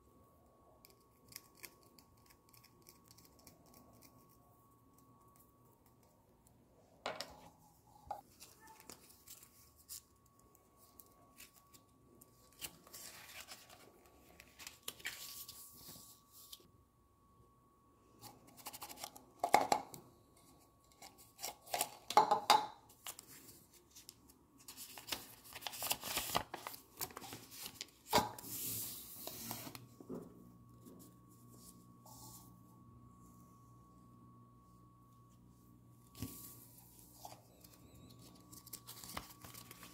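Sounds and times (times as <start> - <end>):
paper and plastic crinkling: 8.2 - 16.6, 22.9 - 29.8, 36.2 - 39.9.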